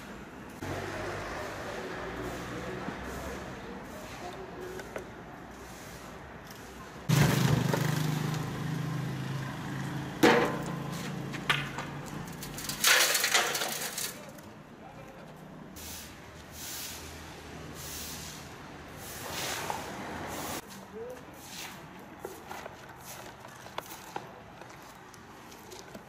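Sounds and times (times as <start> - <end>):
broom scraping grit on asphalt: 1.4 - 8.1, 15.7 - 25.9.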